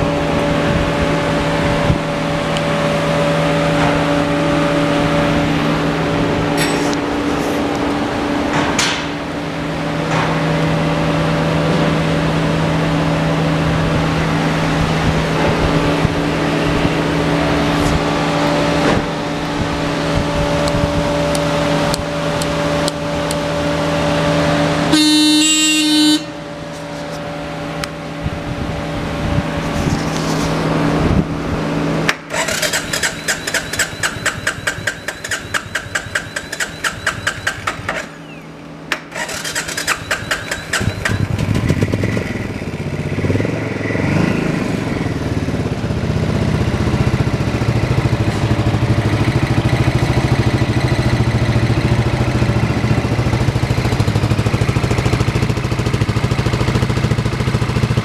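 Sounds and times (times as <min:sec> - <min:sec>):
motorcycle engine hum: 0:00.0 - 0:58.0
electric horn blast: 0:24.8 - 0:26.5
electric starter cranking engine: 0:32.1 - 0:42.4.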